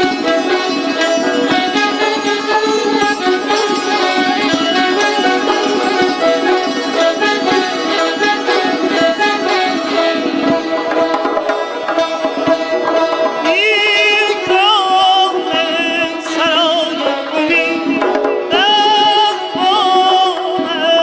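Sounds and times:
santur and kamancheh playing: 0:00.0 - 0:21.0
man singing: 0:13.4 - 0:21.0.

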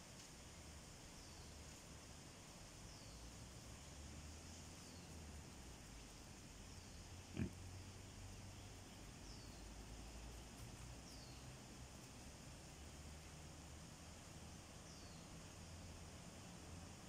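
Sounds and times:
wild boar grunt: 0:07.0 - 0:08.1.

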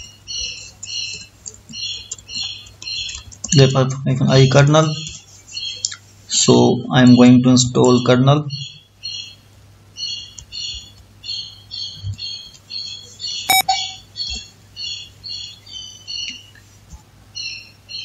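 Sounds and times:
bird chirping: 0:10.0 - 0:16.5.

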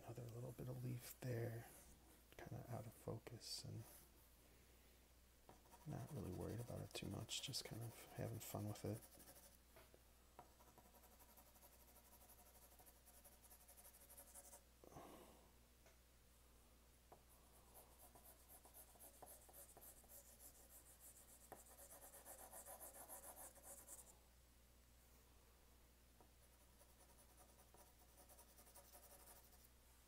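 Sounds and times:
pencil scratching on paper: 0:05.5 - 0:09.6, 0:10.4 - 0:14.6, 0:17.5 - 0:24.1, 0:26.4 - 0:29.7.

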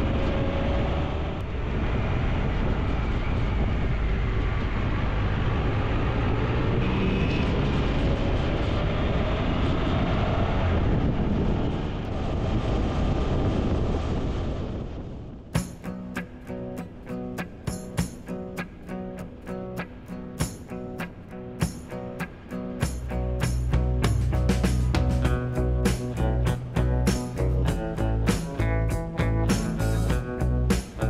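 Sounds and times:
motorcycle engine accelerating: 0:00.0 - 0:16.2, 0:22.8 - 0:31.0
wind and road noise: 0:00.0 - 0:31.0.

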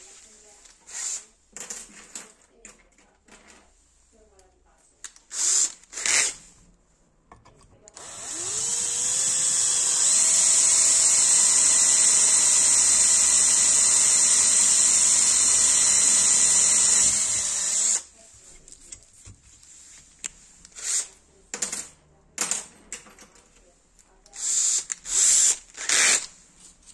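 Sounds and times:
electric drill whining: 0:08.0 - 0:18.1, 0:24.4 - 0:26.3.

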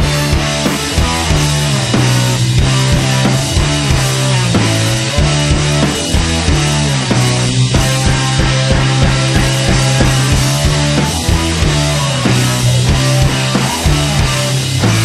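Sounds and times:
loud rock music: 0:00.0 - 0:15.0
steady drum beat: 0:00.0 - 0:15.0
sustained bass line: 0:00.0 - 0:15.0.

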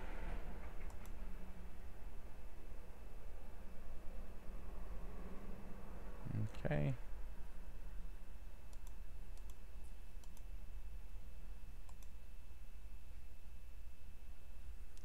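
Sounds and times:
low hum: 0:00.0 - 0:15.0
computer mouse clicks: 0:00.8 - 0:01.2, 0:08.7 - 0:10.5, 0:11.8 - 0:12.2.

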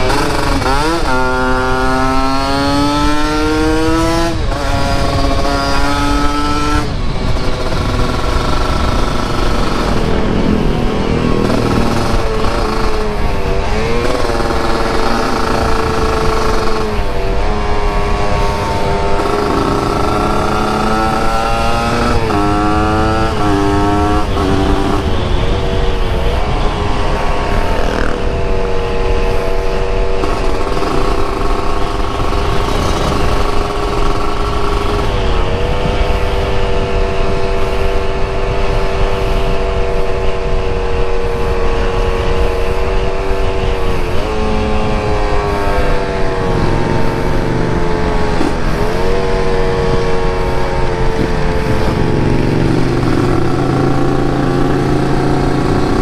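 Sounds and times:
motorcycle engine shifting gears: 0:00.0 - 0:56.0
wind on microphone: 0:00.0 - 0:56.0.

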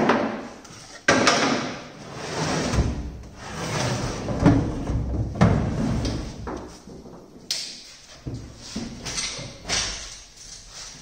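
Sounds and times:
wooden blocks scraping and rumbling: 0:02.0 - 0:07.5.

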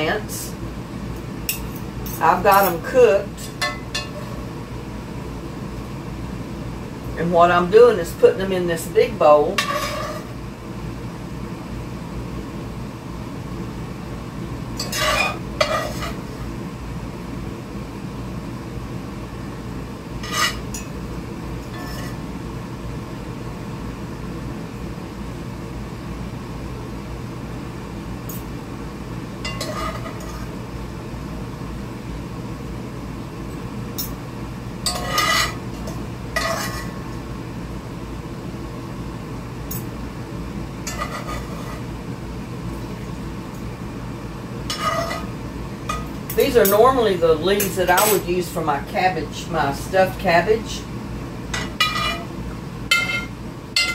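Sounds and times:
metal utensil clinking on pot: 0:47.6 - 0:48.2, 0:51.6 - 0:52.2, 0:52.9 - 0:53.9.

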